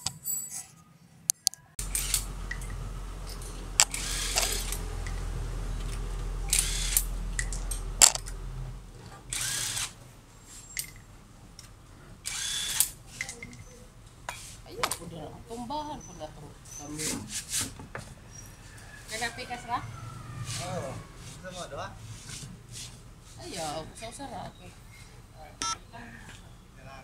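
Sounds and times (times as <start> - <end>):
steady low hum: 1.8 - 10.5
sharp clicks: 3.8 - 5.2, 6.5 - 8.4
power tool hissing bursts: 9.3 - 10.0, 12.2 - 12.9.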